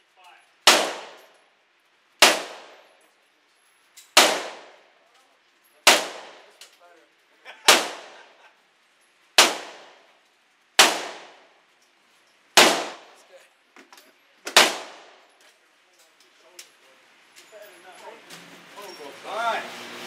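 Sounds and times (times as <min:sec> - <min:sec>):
gunshots with ringing echo: 0:00.6 - 0:01.4, 0:02.2 - 0:02.9, 0:04.2 - 0:04.8, 0:05.8 - 0:06.6, 0:07.7 - 0:08.2, 0:09.4 - 0:10.0, 0:10.8 - 0:11.5, 0:12.6 - 0:13.2, 0:14.5 - 0:15.2.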